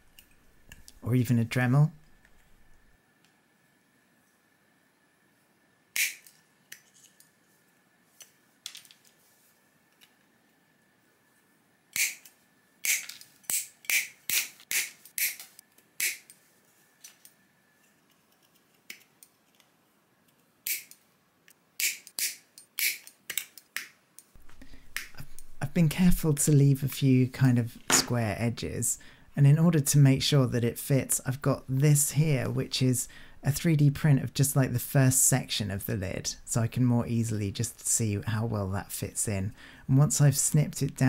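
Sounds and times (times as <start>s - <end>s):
wire snips snapping plastic: 12.0s - 16.4s.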